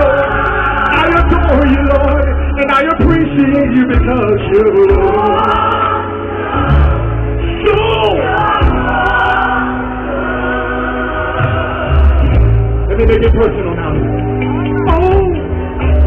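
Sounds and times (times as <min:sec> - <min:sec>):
band with heavy bass: 0:00.0 - 0:05.9, 0:06.6 - 0:16.0
choir singing gospel: 0:00.0 - 0:12.8.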